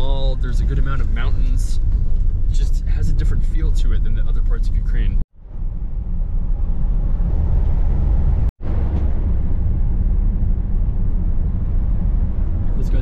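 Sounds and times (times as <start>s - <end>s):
road and engine rumble: 0.0s - 13.0s.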